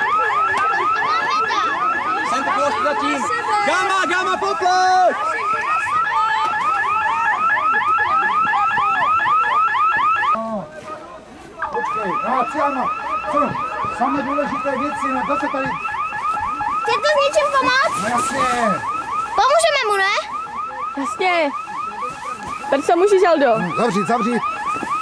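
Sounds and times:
whooping alarm siren: 0.0 - 10.4, 11.6 - 25.0.

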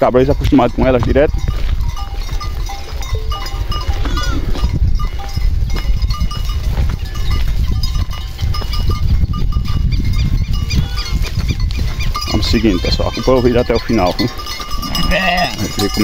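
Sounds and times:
wind on microphone: 0.0 - 16.0
goats calling: 3.6 - 4.7, 9.6 - 16.0
high clinking notes: 12.1 - 16.0.

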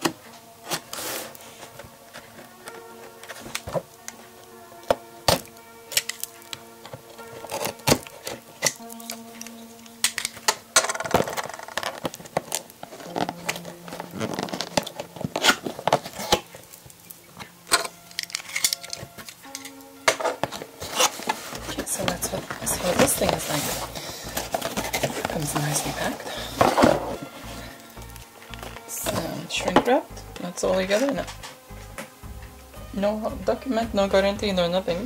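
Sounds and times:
cardboard flaps crackling: 0.0 - 19.5, 20.2 - 29.5
soft background music: 0.0 - 35.0
tape peeling off cardboard: 4.8 - 17.5.

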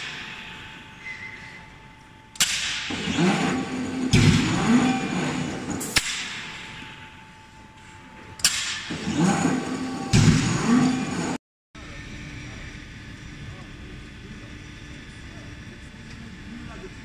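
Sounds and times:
forging press metallic blows: 0.0 - 7.3, 8.3 - 11.4
wavering machine noise: 0.0 - 17.0.

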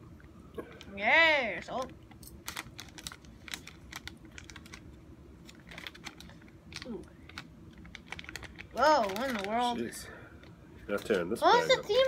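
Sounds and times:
plastic packaging crinkling: 1.8 - 11.2.

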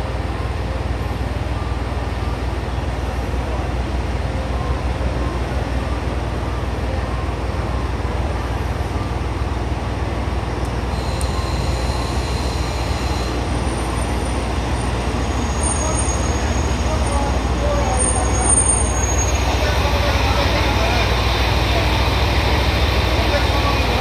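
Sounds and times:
train engine and wheels rumbling: 0.0 - 24.0
high-pitched brake squeal: 10.9 - 19.8.

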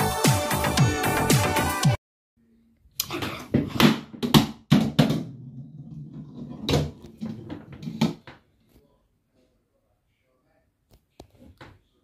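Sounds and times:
ball rolling on wooden floor: 3.5 - 8.4.

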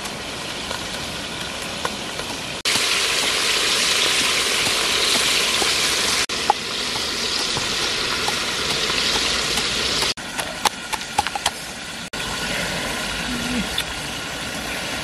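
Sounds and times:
pestle pounding in a mortar: 0.0 - 11.6
pot simmering with sizzling hiss: 0.0 - 15.0.

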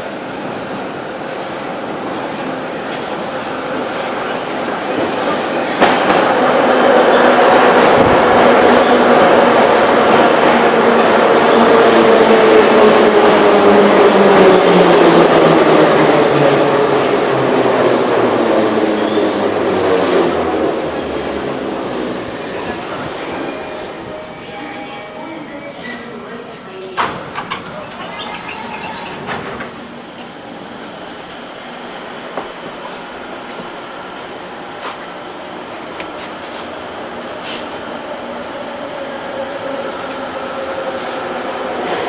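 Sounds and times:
train wheel and running noise: 0.0 - 42.0
train wheels and motors rumbling: 26.5 - 42.0.

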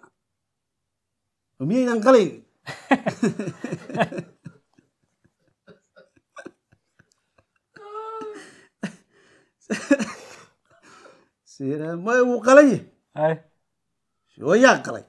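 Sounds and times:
men laughing: 2.6 - 10.4.

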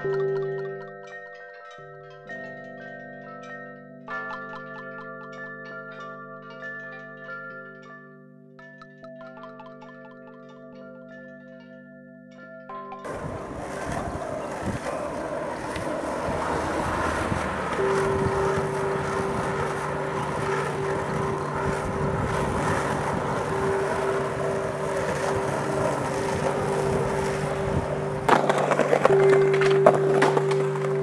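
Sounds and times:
skateboard wheels rolling on asphalt: 13.1 - 31.0
wind on microphone: 13.1 - 31.0.

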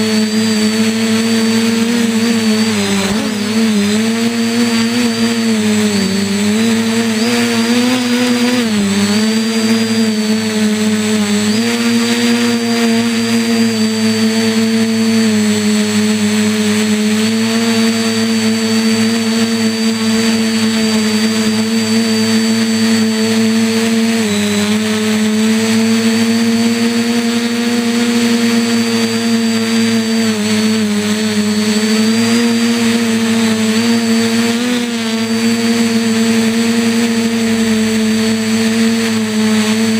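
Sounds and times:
drone propellers whining: 0.0 - 39.9.

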